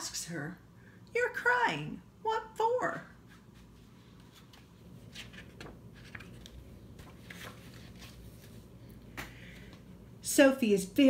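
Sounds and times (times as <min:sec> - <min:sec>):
paper rustling: 0:03.3 - 0:09.0
page turning ticks: 0:04.4 - 0:08.2.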